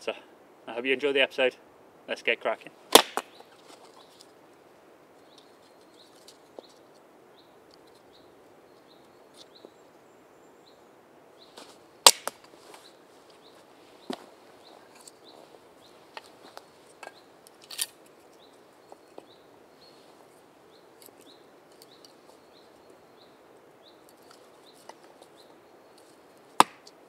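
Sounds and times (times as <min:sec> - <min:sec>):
hatchet striking wood: 0:02.9 - 0:03.3, 0:12.0 - 0:12.4, 0:26.6 - 0:26.9
small bird chirping: 0:03.2 - 0:04.4, 0:05.2 - 0:11.6, 0:12.8 - 0:17.6, 0:18.2 - 0:26.4.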